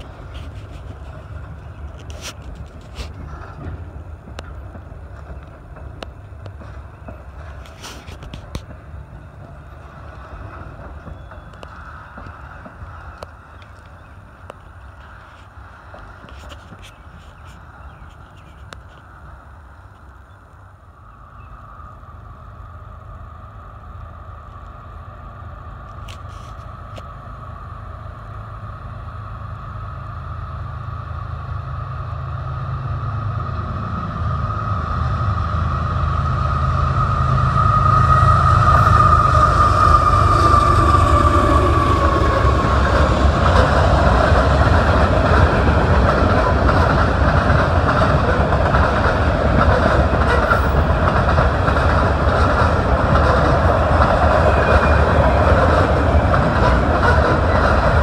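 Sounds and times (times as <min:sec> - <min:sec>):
train wheels clickety-clack: 0:00.0 - 0:20.3, 0:37.6 - 0:58.0
diesel locomotive engine rumble: 0:00.0 - 0:58.0
locomotive whine dropping in pitch: 0:29.5 - 0:46.0.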